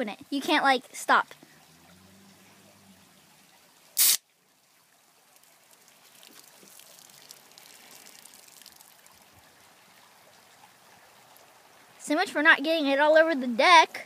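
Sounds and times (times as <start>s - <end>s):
soda fizzing: 3.9s - 4.2s, 5.4s - 9.4s
can snapped open with hiss: 4.0s - 4.2s.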